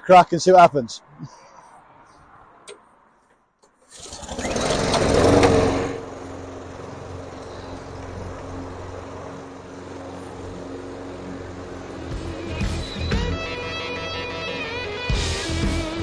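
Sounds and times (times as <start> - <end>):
lawn mowers running: 3.8 - 16.0.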